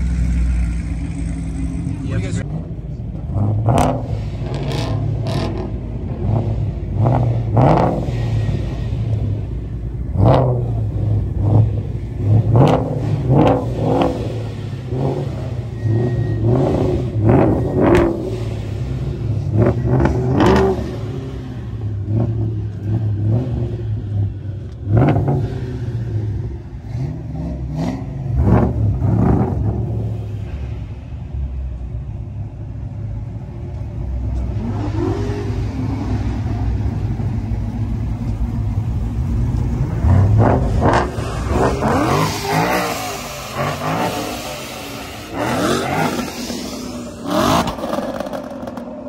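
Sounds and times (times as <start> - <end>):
car engine idling and revving: 0.0 - 49.0.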